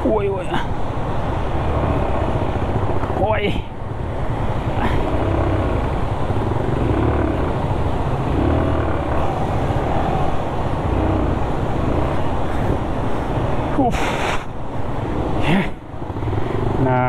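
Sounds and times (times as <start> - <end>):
motorcycle engine running: 0.8 - 13.8.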